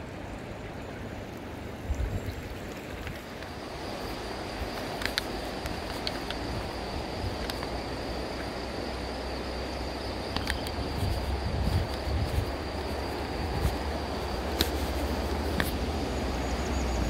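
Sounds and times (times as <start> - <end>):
fast river rushing: 0.0 - 17.0
wind buffeting microphone: 1.8 - 8.1, 10.3 - 17.0
light clicks: 4.7 - 6.5, 10.3 - 12.1.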